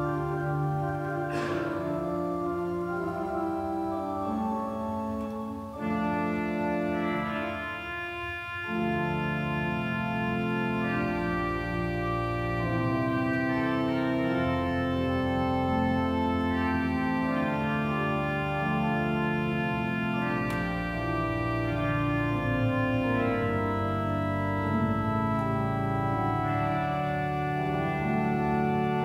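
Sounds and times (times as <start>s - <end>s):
church organ chords: 0.0s - 29.0s.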